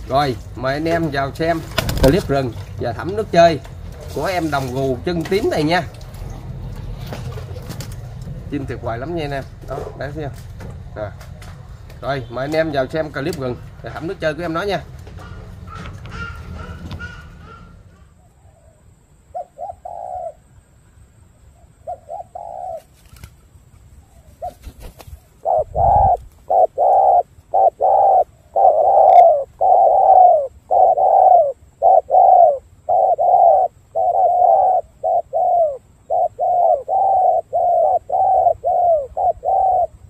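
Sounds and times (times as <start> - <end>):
dove cooing: 15.0 - 20.4, 21.8 - 22.9, 24.1 - 40.0.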